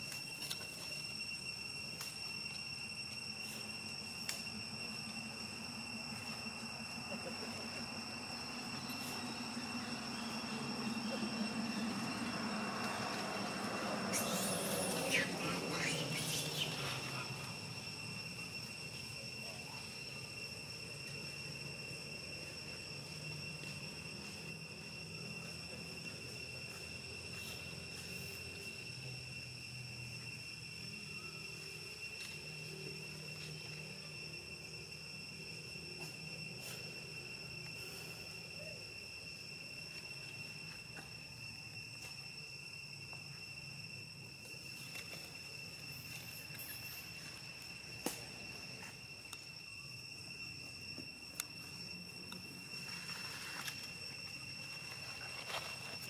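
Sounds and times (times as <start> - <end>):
cricket trill: 0.0 - 56.0
insects chirring: 0.0 - 56.0.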